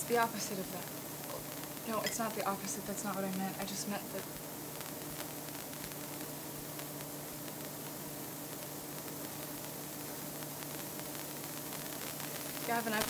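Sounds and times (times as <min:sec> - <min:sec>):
low even hum: 0:00.0 - 0:13.0
steady hiss: 0:00.0 - 0:13.0.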